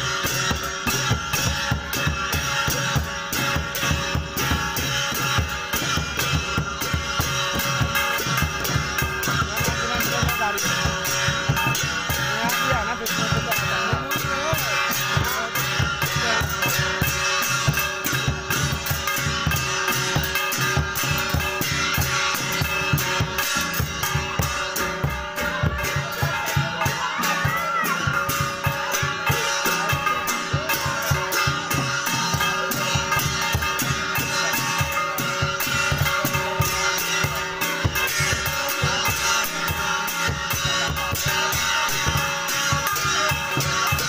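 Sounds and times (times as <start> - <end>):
steady drum beat: 0.0 - 44.0
folk dance music: 23.0 - 32.4.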